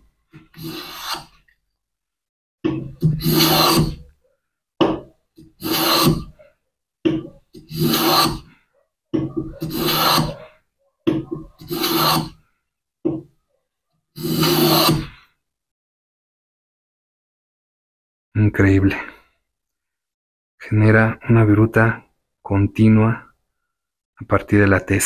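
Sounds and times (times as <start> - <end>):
hand plane cutting end grain: 0.4 - 1.4, 3.0 - 4.0, 5.4 - 6.4, 7.6 - 8.5, 9.5 - 10.4, 11.5 - 12.4, 14.2 - 15.1.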